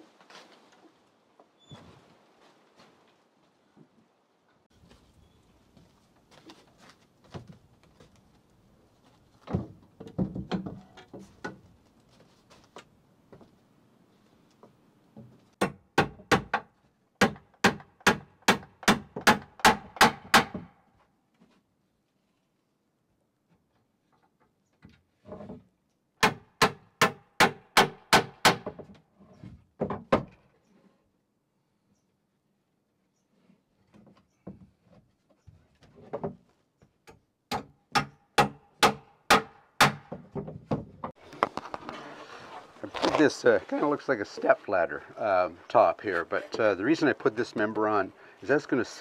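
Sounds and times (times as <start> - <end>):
footsteps on wooden porch: 4.7 - 15.6
wooden door knocks and thuds: 9.5 - 10.9, 29.8 - 30.4, 37.5 - 41.1.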